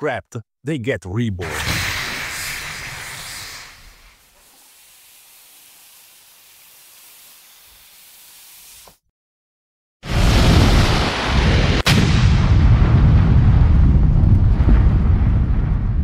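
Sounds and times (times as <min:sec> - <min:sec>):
hissing rush: 0:01.4 - 0:08.9.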